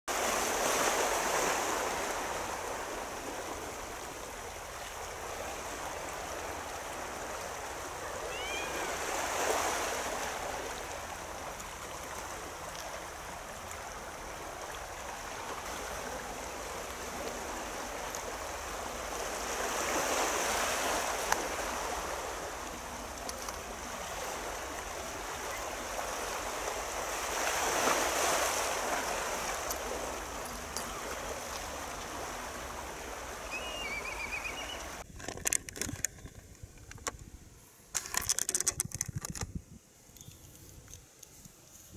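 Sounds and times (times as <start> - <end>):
sea waves washing on shore: 0.1 - 35.1.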